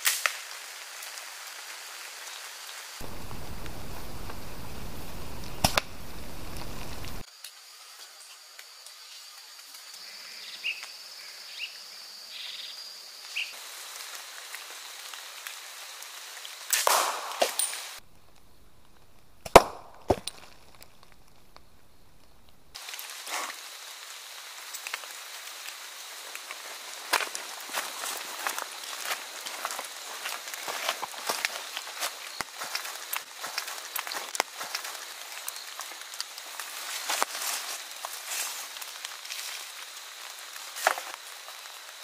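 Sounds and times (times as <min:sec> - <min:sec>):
sharp cracks: 0:03.0 - 0:07.2, 0:16.7 - 0:22.8
faint outdoor background: 0:03.0 - 0:13.8, 0:16.8 - 0:27.8.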